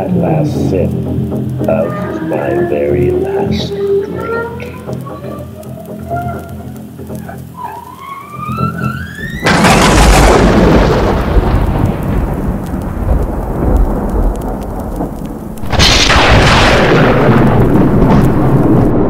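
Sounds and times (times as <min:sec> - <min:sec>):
steady rain: 0:00.0 - 0:19.0
rolling thunder crashes: 0:09.3 - 0:19.0.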